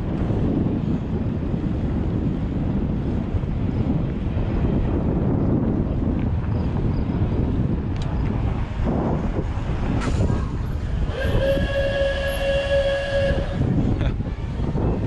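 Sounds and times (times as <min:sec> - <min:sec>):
wind buffeting microphone: 0:00.0 - 0:15.0
horn steady note: 0:11.1 - 0:13.8.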